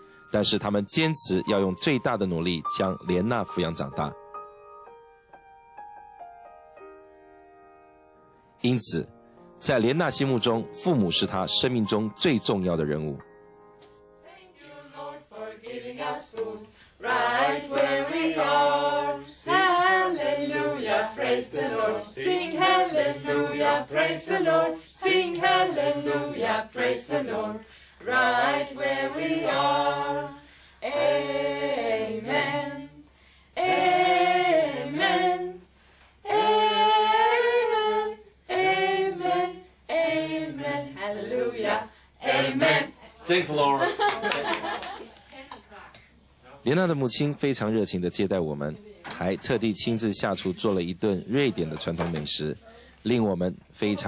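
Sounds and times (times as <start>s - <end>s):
voices singing unaccompanied: 14.2s - 43.8s.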